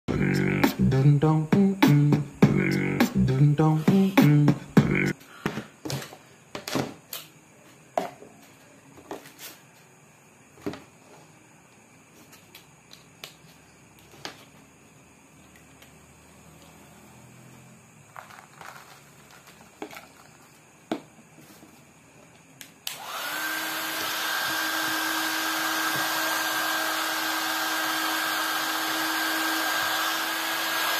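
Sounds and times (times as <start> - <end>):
beatboxed vocal jingle: 0.1 - 5.2
hair dryer whining: 22.8 - 30.9.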